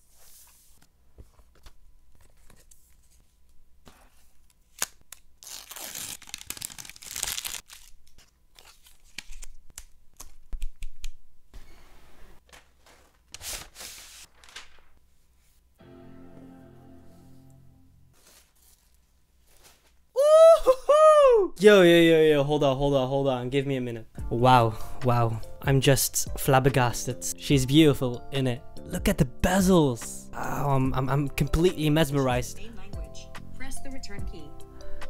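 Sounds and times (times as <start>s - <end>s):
paper tearing and peeling: 4.7s - 9.6s, 12.5s - 14.7s
cardboard rustling: 18.1s - 20.0s.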